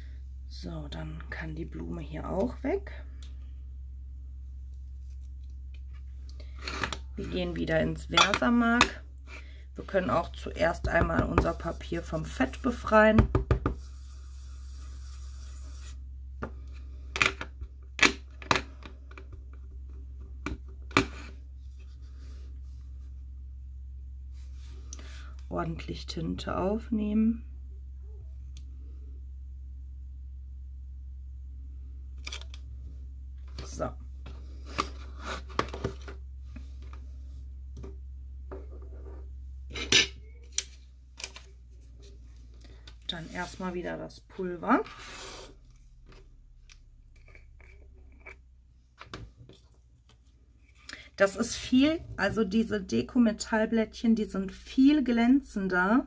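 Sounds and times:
low hum: 0.0s - 13.1s, 13.8s - 56.0s
pad rubbing on cardstock: 13.6s - 16.0s.

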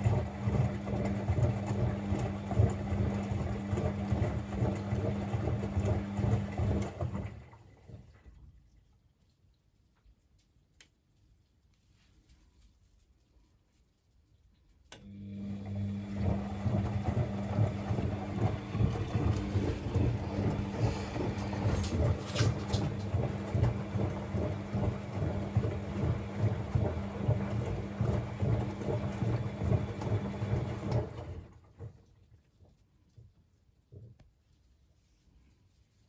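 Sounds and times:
washing machine motor hum: 0.0s - 8.4s, 14.9s - 32.3s
laundry sloshing and thudding: 0.1s - 8.4s, 16.0s - 32.0s.

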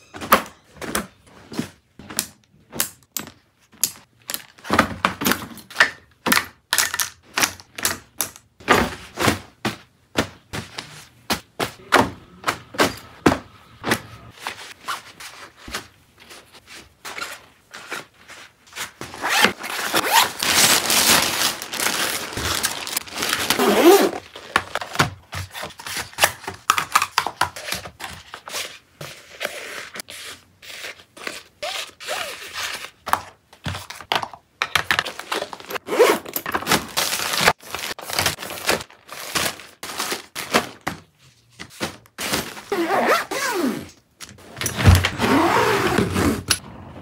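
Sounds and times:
bags zipping: 19.2s - 24.3s, 35.8s - 36.3s, 42.3s - 43.9s, 44.8s - 46.5s.

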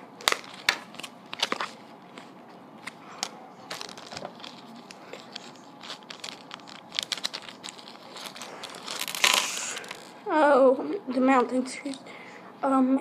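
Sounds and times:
plastic bag crinkling: 3.2s - 10.2s.

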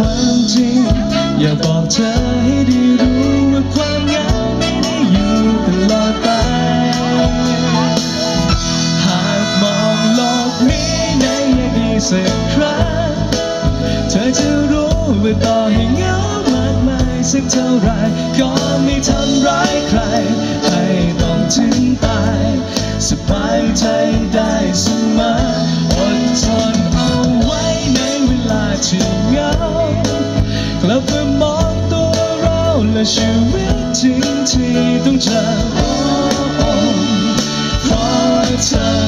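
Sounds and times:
man singing into microphone: 0.0s - 39.0s
pop-rock band playing: 0.0s - 39.0s.

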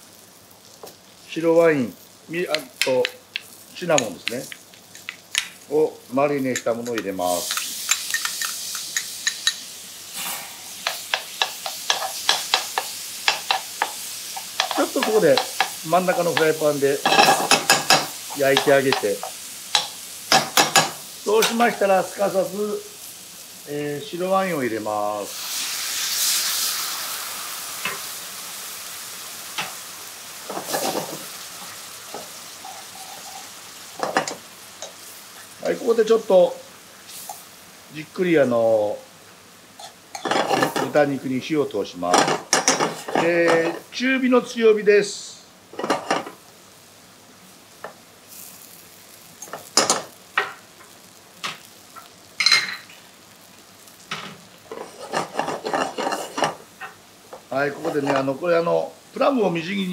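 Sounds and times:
wine sizzling in frying pan: 0.0s - 59.9s
metal fork scraping a pan: 10.2s - 15.8s, 32.1s - 34.9s, 54.7s - 56.6s.

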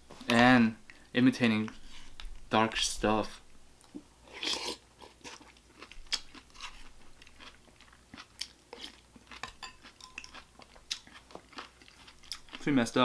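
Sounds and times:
person chewing food: 3.8s - 12.7s.

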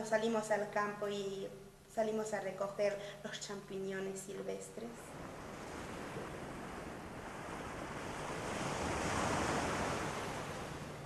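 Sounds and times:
ocean waves washing ashore: 4.9s - 11.0s.

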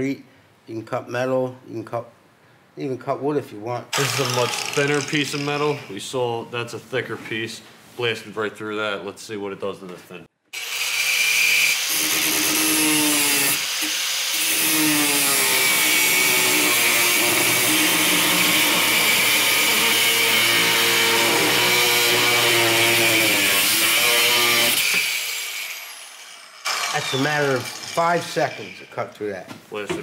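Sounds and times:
angle grinder cutting metal: 3.9s - 6.0s, 10.6s - 29.0s.

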